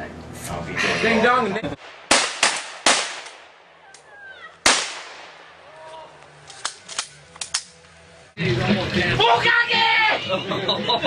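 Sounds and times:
loud echoing gunshot: 1.8 - 3.8, 4.6 - 5.6.

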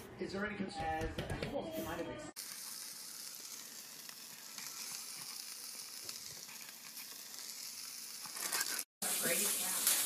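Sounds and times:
meat sizzling on a grill: 2.4 - 10.0.

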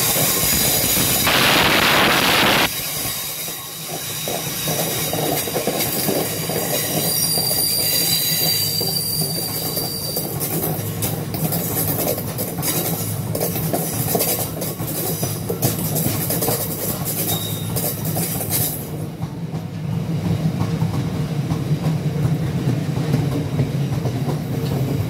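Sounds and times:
train wheels rumbling on rails: 0.0 - 25.0
high wheel squeal: 6.6 - 10.4, 17.3 - 17.8.

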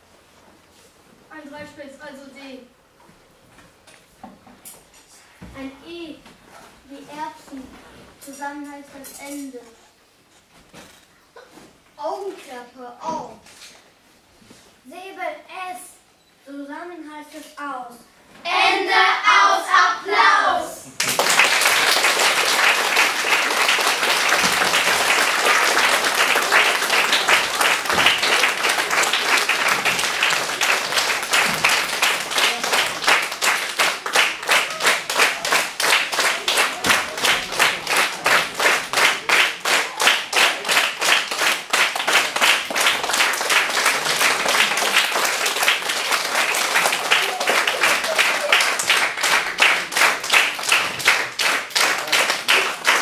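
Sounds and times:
audience clapping: 20.9 - 53.0
rhythmic clapping in unison: 21.0 - 53.0.

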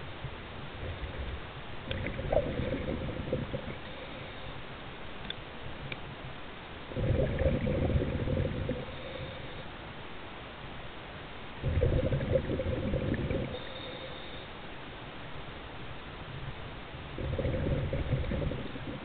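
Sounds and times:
gurgling bubble surges: 0.8 - 3.9, 6.9 - 9.0, 11.6 - 13.7, 17.1 - 19.0.

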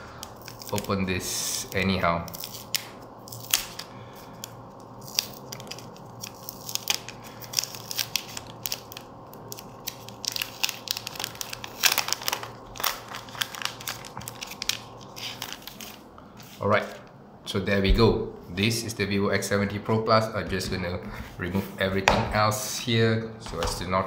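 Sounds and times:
plastic wrap crinkling: 0.1 - 17.1.

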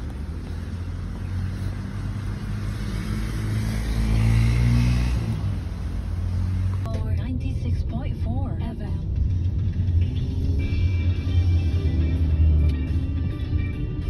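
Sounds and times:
vehicle engine passing: 0.0 - 6.9, 8.9 - 14.0.

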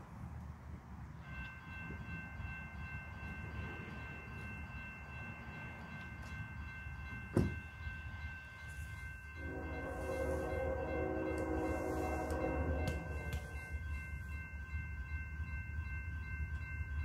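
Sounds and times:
low train rumble: 0.0 - 17.0
distant locomotive horn: 9.4 - 13.7.

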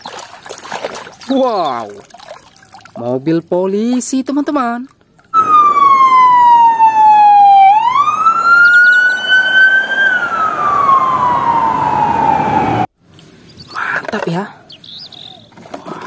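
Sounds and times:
police siren wailing: 5.4 - 12.9.

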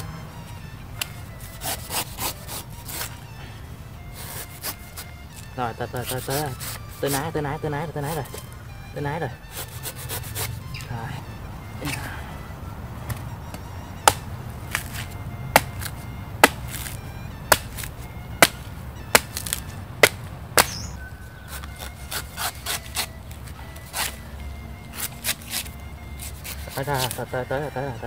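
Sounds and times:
scraping coconut husk: 0.0 - 11.2, 14.0 - 28.0
machete chopping coconut husk: 1.0 - 3.2, 4.1 - 7.4, 9.5 - 10.6, 13.0 - 24.2, 24.8 - 27.5.

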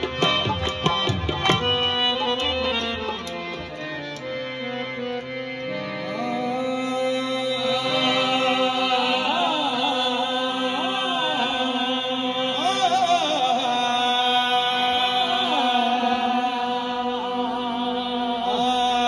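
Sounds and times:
harmonium drone chords: 0.0 - 19.0
person singing ornamented vocal: 6.1 - 19.0.

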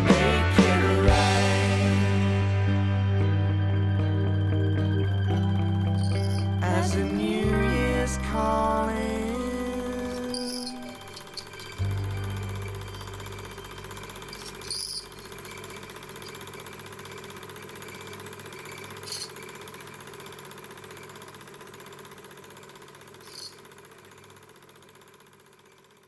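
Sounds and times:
film projector motor and clatter: 9.4 - 26.0.

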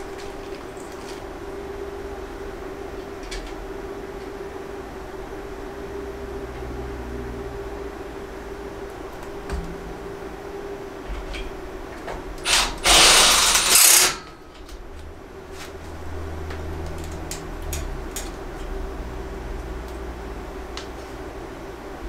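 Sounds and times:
steady low hum: 0.0 - 22.0
cordless drill running: 12.4 - 14.1.

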